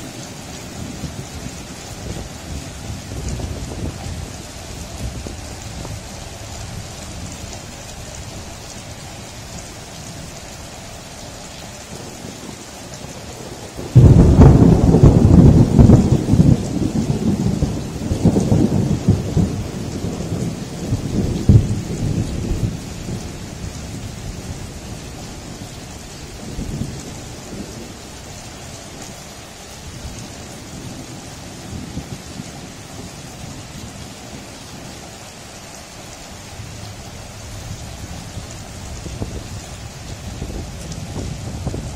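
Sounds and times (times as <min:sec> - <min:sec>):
steady rain: 0:00.0 - 0:41.9
thunder rolling: 0:00.8 - 0:06.0, 0:12.0 - 0:25.7, 0:36.6 - 0:41.9
thunder crack: 0:13.8 - 0:22.8.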